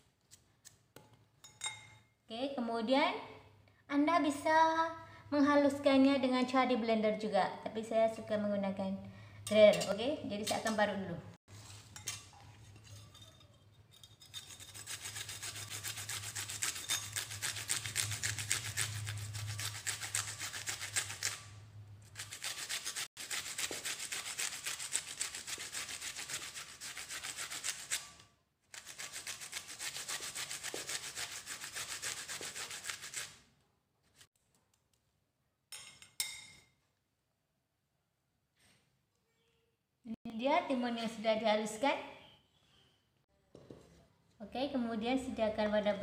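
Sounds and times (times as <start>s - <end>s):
cucumber grated on metal grater: 14.3s - 21.5s, 22.1s - 33.4s.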